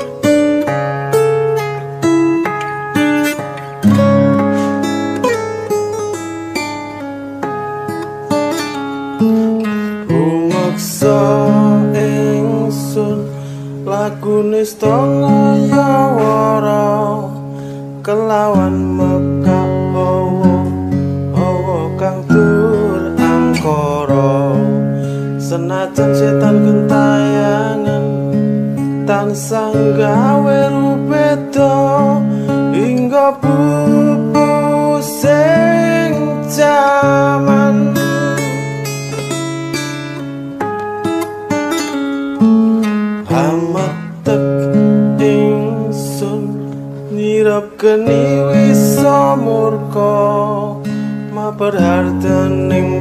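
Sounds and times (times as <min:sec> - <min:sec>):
fingerstyle acoustic guitar: 0:00.0 - 0:53.0
man singing in long held notes: 0:09.8 - 0:28.3, 0:29.0 - 0:39.0.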